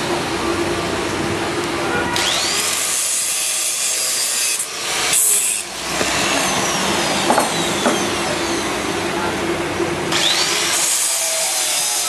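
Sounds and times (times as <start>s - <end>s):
angle grinder grinding steel: 2.2s - 8.9s, 10.1s - 12.0s
grinder disc whine winding down: 5.7s - 8.9s.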